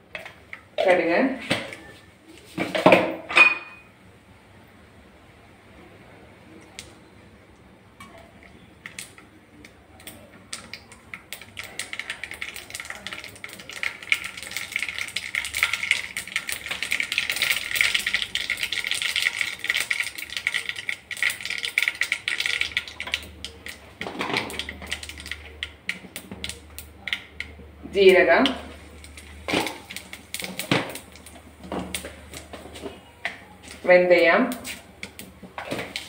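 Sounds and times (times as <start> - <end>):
seeds popping in hot oil: 8.0 - 36.0.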